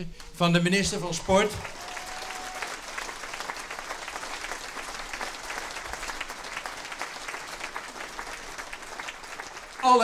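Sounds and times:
crowd applauding: 0.9 - 10.0.

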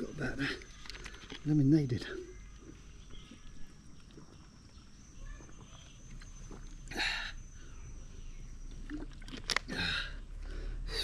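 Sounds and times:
man swallowing water: 8.7 - 10.2.

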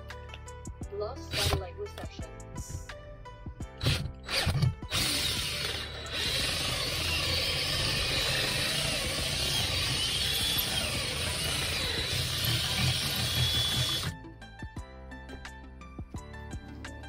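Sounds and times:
power drill boring through metal: 1.3 - 1.6, 3.8 - 14.2.

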